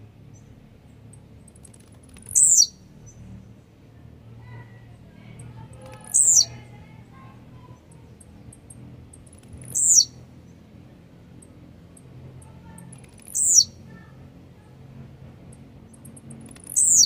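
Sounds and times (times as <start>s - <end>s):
bird wings flapping: 1.5s - 2.4s.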